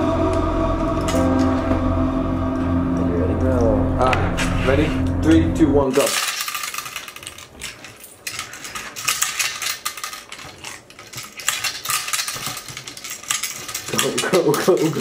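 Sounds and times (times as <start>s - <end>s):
plastic checkers clattering into grid: 5.9s - 15.0s.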